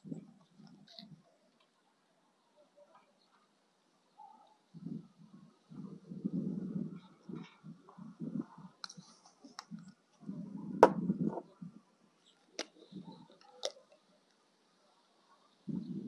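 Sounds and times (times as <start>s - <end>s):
low muffled thuds: 10.8s - 11.5s.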